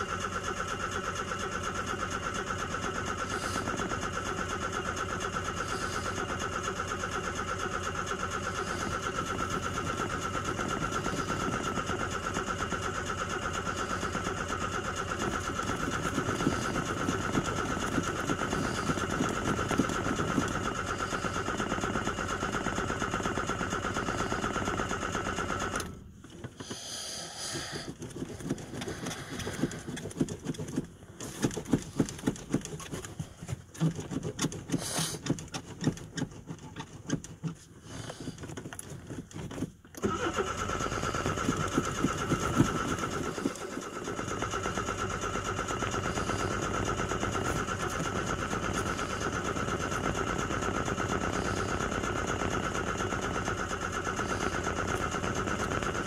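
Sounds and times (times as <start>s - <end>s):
starter cranking engine: 0.0s - 56.0s
irregular knocks and pops: 27.5s - 40.0s.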